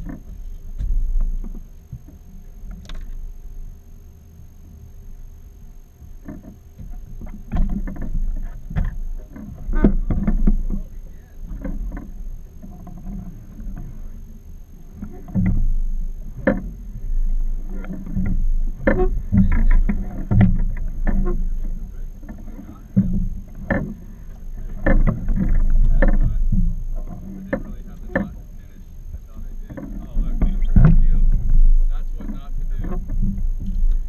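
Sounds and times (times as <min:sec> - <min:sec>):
constant low rumble: 0:00.0 - 0:34.0
knocks and clunks on deck: 0:06.2 - 0:10.9, 0:15.0 - 0:16.8, 0:17.7 - 0:28.4, 0:29.1 - 0:34.0
water slapping against boat hull: 0:06.2 - 0:14.0, 0:14.9 - 0:34.0.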